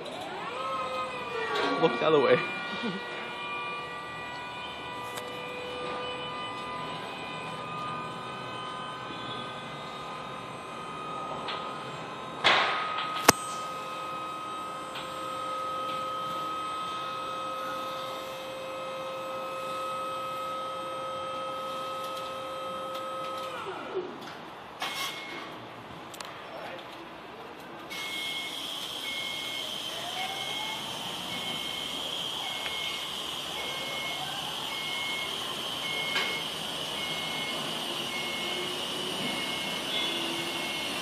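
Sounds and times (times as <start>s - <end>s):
hydraulic pump motor whine: 0.0s - 24.1s, 27.9s - 41.0s
sharp click: 13.2s - 13.7s.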